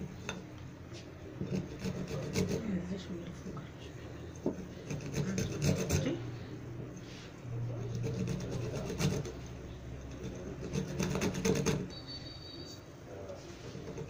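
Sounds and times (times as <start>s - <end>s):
fruit scraping on metal grater: 1.4s - 2.8s, 4.4s - 6.2s, 7.7s - 11.9s, 13.6s - 14.0s.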